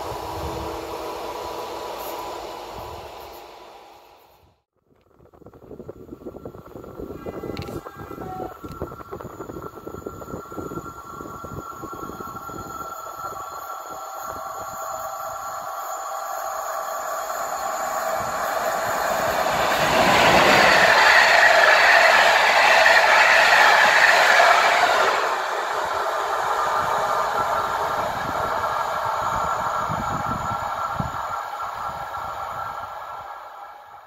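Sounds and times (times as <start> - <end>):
train wheels rushing on rails: 0.0 - 4.6, 5.2 - 34.0.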